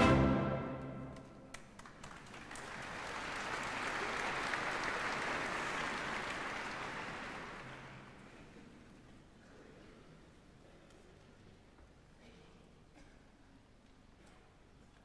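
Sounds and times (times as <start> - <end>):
orchestral ending: 0.0 - 1.2
audience applauding: 1.1 - 8.3.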